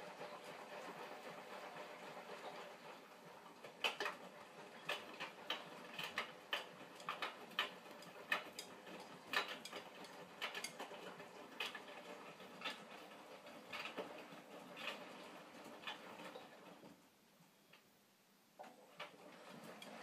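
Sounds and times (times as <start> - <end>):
sharp clicks and knocks: 3.7 - 17.0.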